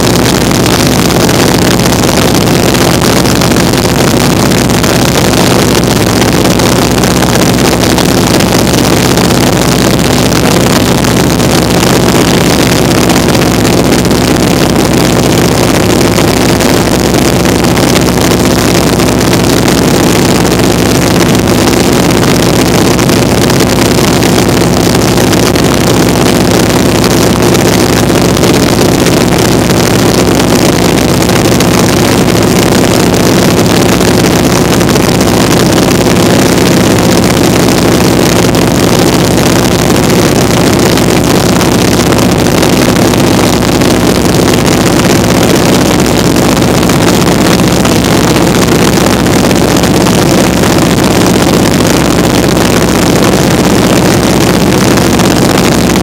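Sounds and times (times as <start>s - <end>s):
biplane engine and propeller: 0.0s - 56.0s.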